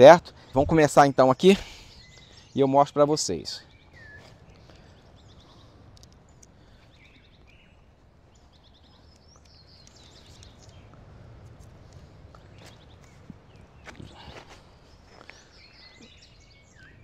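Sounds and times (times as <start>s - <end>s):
birds calling: 0.0s - 17.0s
faint background noise: 0.0s - 17.0s
faint clicks: 5.9s - 6.6s, 9.0s - 13.2s.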